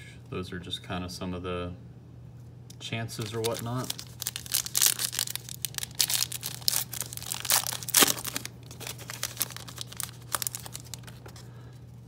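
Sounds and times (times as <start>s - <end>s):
foil wrapper crinkling: 3.1s - 11.6s.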